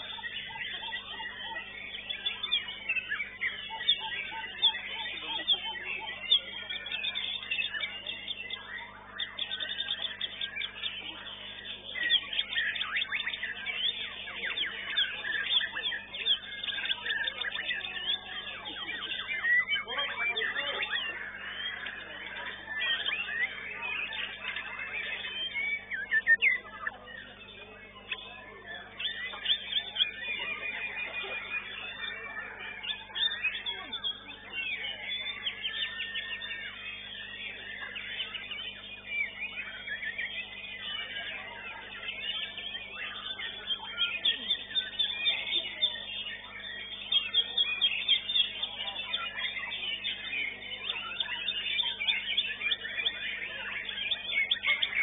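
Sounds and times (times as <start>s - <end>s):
songbirds singing: 0.0s - 55.0s.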